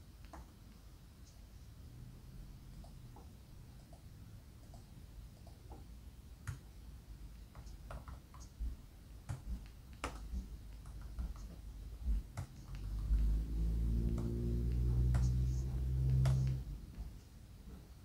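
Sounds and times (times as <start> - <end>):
computer keys clicking: 2.7 - 5.8, 7.4 - 8.6, 9.2 - 13.3, 14.1 - 16.7.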